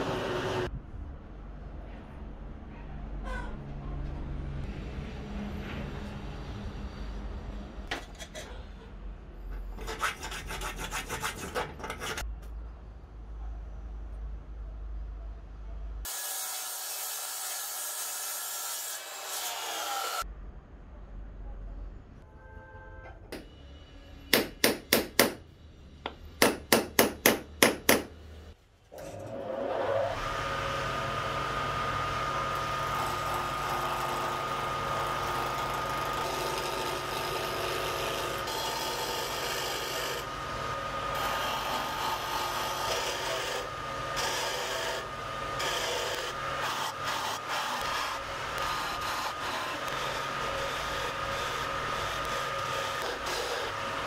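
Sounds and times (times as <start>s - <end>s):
gouge scraping spinning wood: 9.7s - 12.2s, 32.2s - 54.0s
hammer striking metal punch: 24.3s - 25.4s, 26.1s - 28.2s
wood lathe whining: 29.0s - 54.0s.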